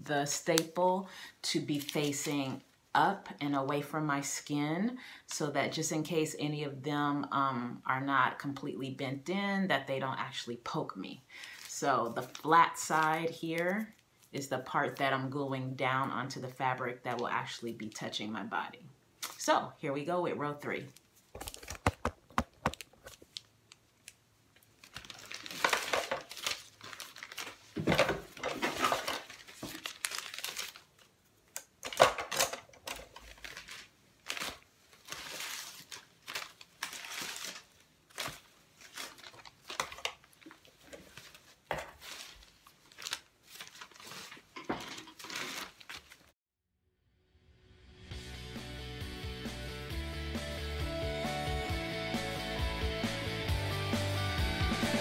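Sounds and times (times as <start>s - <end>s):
stiff paper rustling and crinkling: 21.0s - 46.4s.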